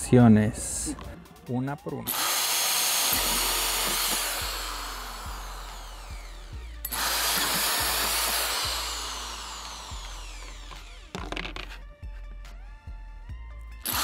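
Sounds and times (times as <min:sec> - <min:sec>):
electric drill hole saw cutting plastic: 0:02.1 - 0:11.7.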